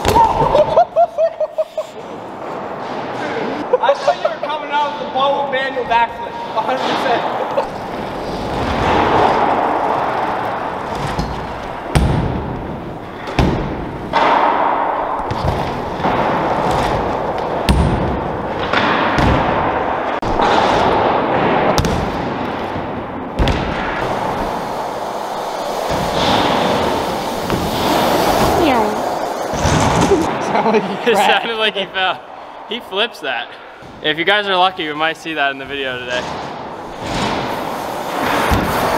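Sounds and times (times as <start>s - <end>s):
bike tyres rolling on ramps: 4.3s - 31.4s, 32.1s - 38.9s
wheels thudding on ramps: 6.9s - 30.4s, 36.2s - 38.9s.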